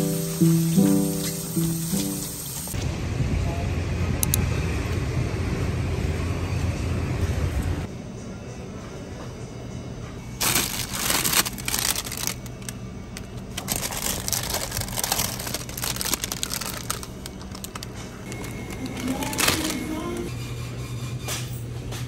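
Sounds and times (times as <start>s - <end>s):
plastic wrappers rustling: 10.4s - 20.3s.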